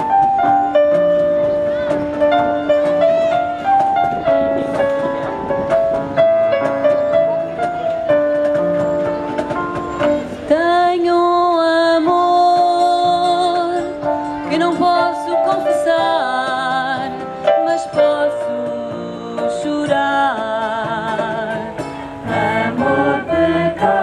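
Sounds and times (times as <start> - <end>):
keyboard accompaniment: 0.0 - 24.0
group of women singing: 22.2 - 24.0.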